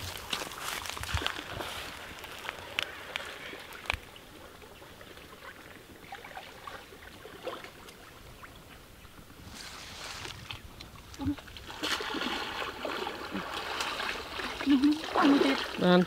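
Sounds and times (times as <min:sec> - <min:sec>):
water sloshing and trickling: 0:00.0 - 0:16.0.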